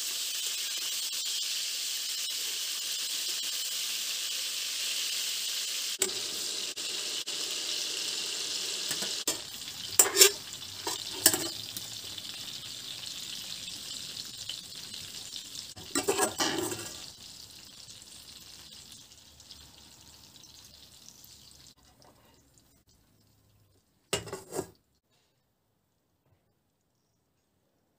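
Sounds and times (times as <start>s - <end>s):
meat sizzling in frying oil: 0.0s - 22.9s
metal spatula scraping pan: 8.9s - 11.7s, 15.8s - 17.0s, 24.2s - 24.8s.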